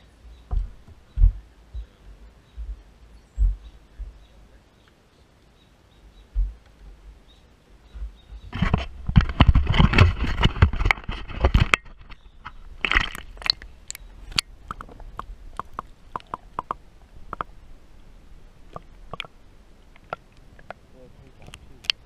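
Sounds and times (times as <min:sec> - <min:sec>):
water splashing: 0:07.8 - 0:22.0
sharp underwater clicks: 0:07.9 - 0:17.5, 0:18.7 - 0:22.0.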